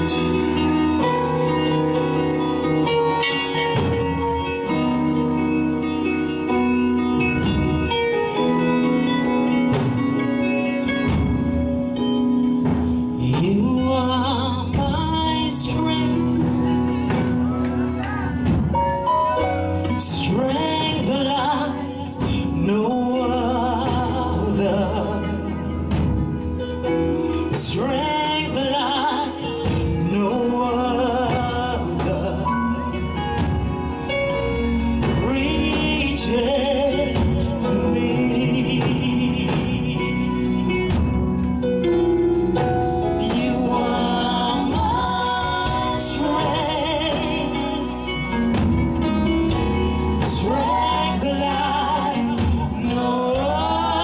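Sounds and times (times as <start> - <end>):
gospel band playing: 0.0 - 54.0
woman singing: 13.2 - 19.1, 19.9 - 26.1, 27.4 - 34.0, 34.7 - 41.0, 43.1 - 48.7, 49.7 - 54.0.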